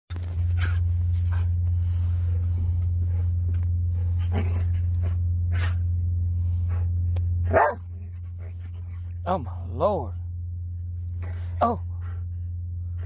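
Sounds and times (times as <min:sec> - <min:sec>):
steady low hum: 0:00.1 - 0:13.0
dog whining and grumbling: 0:11.2 - 0:12.2.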